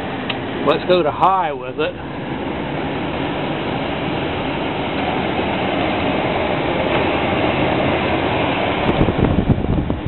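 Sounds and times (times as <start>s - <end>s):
air conditioner blower rushing: 0.0s - 10.0s.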